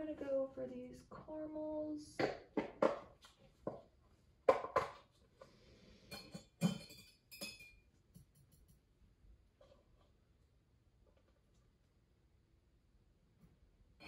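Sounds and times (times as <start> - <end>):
taps on plastic containers: 2.2 - 3.8, 4.5 - 5.1
metal forceps clinking on glass: 6.1 - 7.8.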